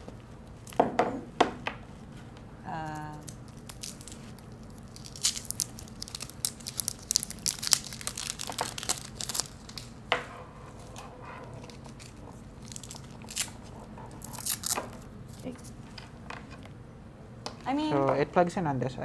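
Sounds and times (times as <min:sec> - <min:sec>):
packaging crinkling and rustling: 0:03.2 - 0:10.0, 0:10.8 - 0:15.7.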